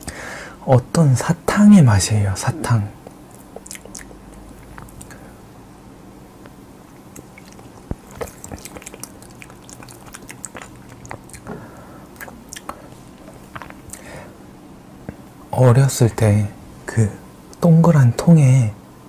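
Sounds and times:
wet mouth clicks and lip smacks: 3.0 - 5.2, 7.0 - 11.5, 12.2 - 14.0.

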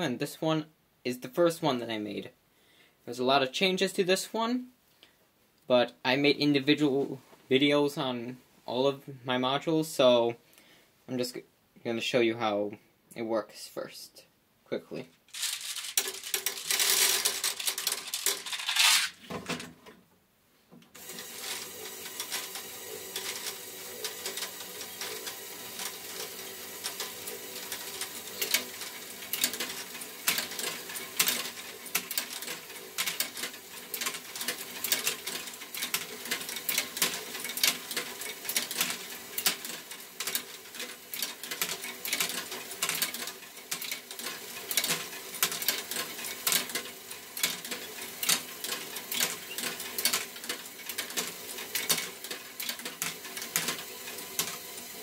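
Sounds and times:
motor-driven chain lift humming: 15.3 - 19.2, 21.0 - 55.0
loud clatter: 15.3 - 19.7
plastic balls clicking and rattling: 15.3 - 19.8.

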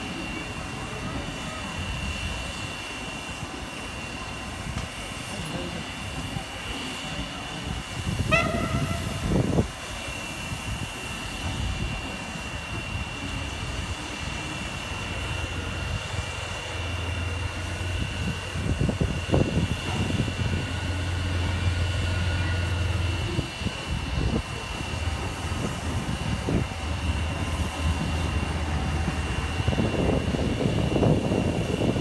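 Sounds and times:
diesel locomotive engine droning: 0.0 - 32.0
locomotive whistle toot: 8.1 - 9.6.

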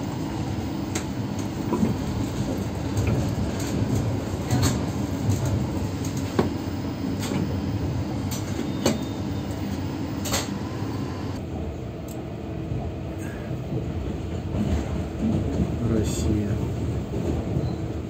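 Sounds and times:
train running rumble: 0.0 - 18.0.

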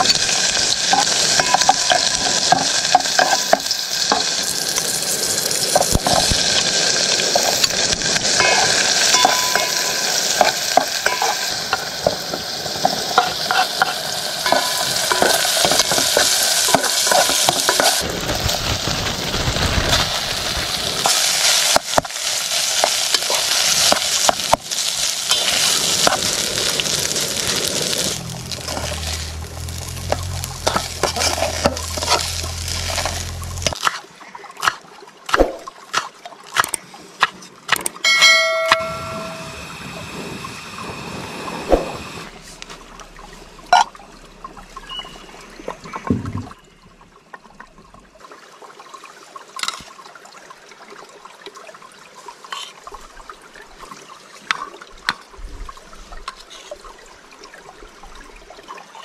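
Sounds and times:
food sizzling in a pan: 0.0 - 33.8
utensil scraping a pan: 12.8 - 18.0, 27.8 - 34.0.

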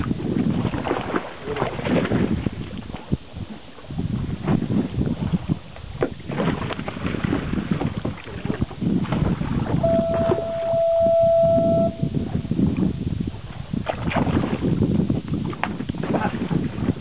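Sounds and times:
water splashing against boat: 0.0 - 17.0
wind buffeting microphone: 0.0 - 17.0
high-pitched tone: 9.8 - 12.5.

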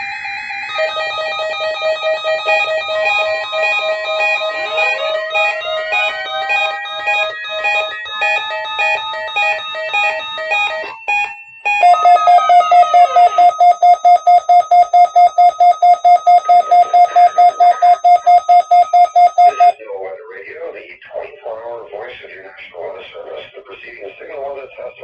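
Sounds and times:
electronic alert beeps: 0.7 - 19.8
loud pulsing beep: 1.6 - 19.8.

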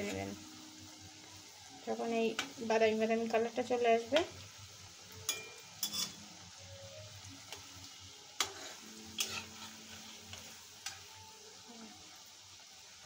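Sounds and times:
food deep-frying in oil: 0.0 - 13.0
metal spatula scraping pan: 5.3 - 6.4, 8.4 - 11.1.

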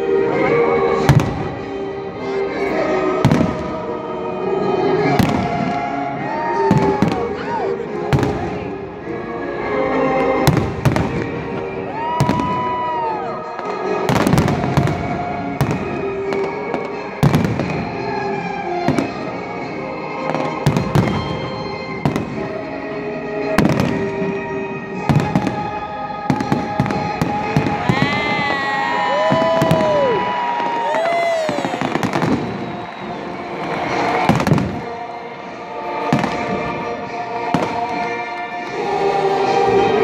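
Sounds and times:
music playing: 0.0 - 40.0
fireworks bursting with sharp bangs: 0.4 - 1.9, 2.7 - 4.1, 4.7 - 8.8, 10.2 - 40.0.

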